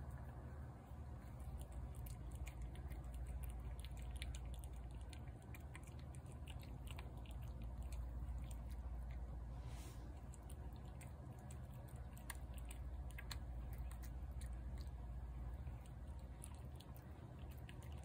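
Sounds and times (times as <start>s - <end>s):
cat chewing and lapping food: 0.0s - 18.0s
low hum: 0.0s - 18.0s.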